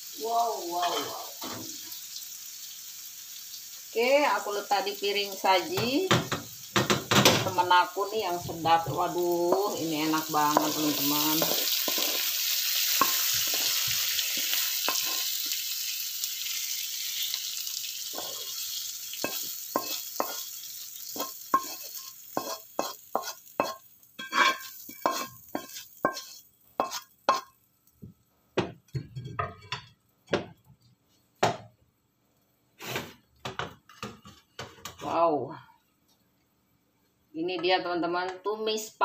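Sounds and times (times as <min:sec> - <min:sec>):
food sizzling in a wok: 0:00.0 - 0:30.6, 0:32.8 - 0:33.2
wooden spatula scraping a wok: 0:08.3 - 0:15.6, 0:18.1 - 0:27.5.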